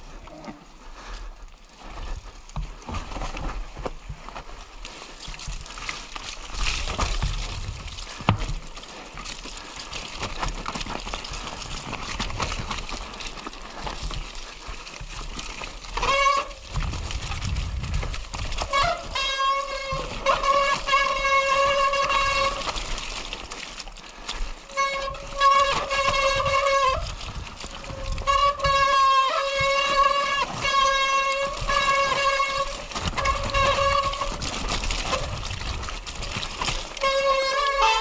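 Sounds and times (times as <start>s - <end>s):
bike tyres rolling over gravel: 0.0s - 38.0s
bike clattering over bumps: 1.8s - 38.0s
whining buzz from bike: 15.9s - 22.9s, 24.7s - 35.4s, 37.0s - 38.0s.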